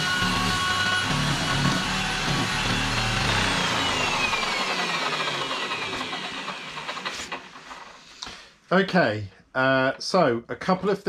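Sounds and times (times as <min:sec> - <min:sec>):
lathe motor winding down: 0:00.0 - 0:08.0
turning tool cutting wood: 0:00.0 - 0:08.1.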